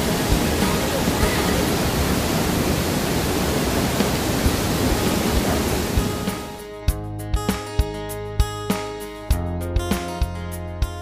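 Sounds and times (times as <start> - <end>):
waterfall roaring: 0.0 - 6.6.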